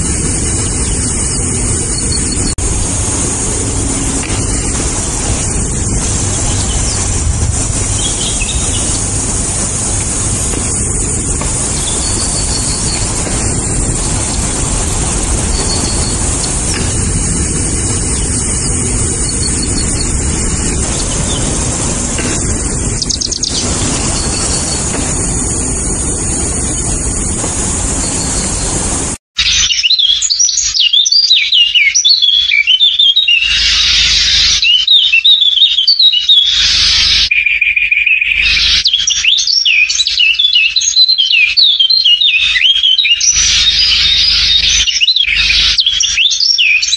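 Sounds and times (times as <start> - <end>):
outdoor hiss and rumble: 0.0 - 29.2
birds chirping and calling: 4.2 - 46.9.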